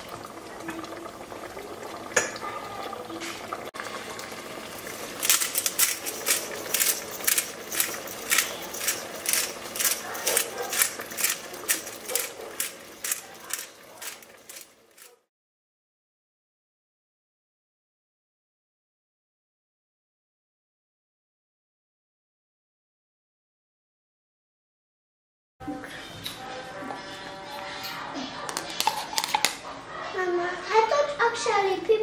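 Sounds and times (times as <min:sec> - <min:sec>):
spice grinder ratcheting clicks: 0:05.2 - 0:14.7.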